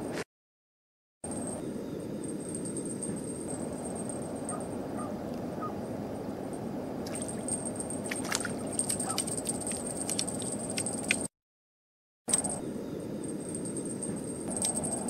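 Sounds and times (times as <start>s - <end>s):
water splashing: 7.1s - 11.2s.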